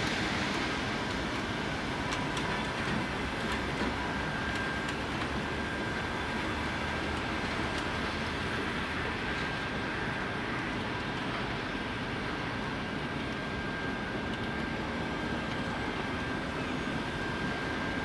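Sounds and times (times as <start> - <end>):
train wheels rumbling on rails: 0.0 - 18.0
faint high steady tone: 13.5 - 18.0.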